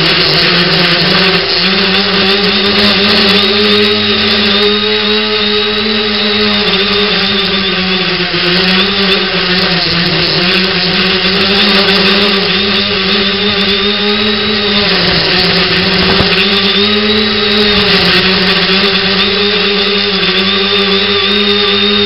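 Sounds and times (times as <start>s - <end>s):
drone motors whirring: 0.0s - 22.0s.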